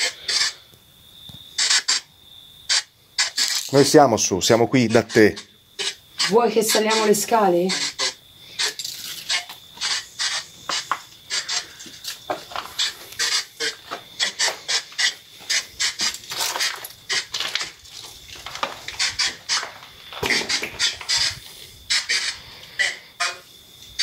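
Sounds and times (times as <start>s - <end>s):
footsteps crunching on gritty floor: 10.6s - 21.2s.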